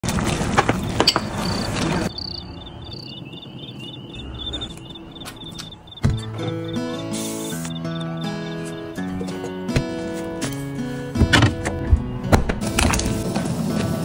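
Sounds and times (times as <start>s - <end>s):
cricket chirping: 0.8s - 9.1s
plucked guitar-like music: 6.0s - 12.9s
loud hiss: 6.8s - 8.4s.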